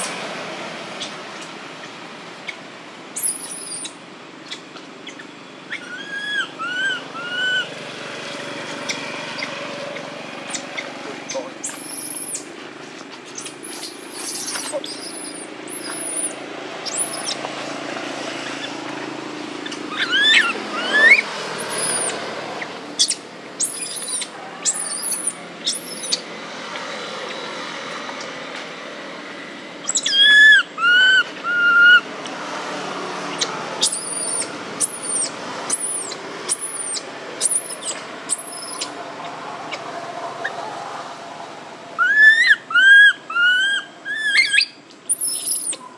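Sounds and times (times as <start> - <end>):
steady background noise: 0.0 - 45.9
baby monkey crying: 3.2 - 7.7, 10.5 - 12.5, 13.4 - 17.4, 19.6 - 26.2, 29.8 - 32.0, 33.3 - 39.8, 42.0 - 45.9.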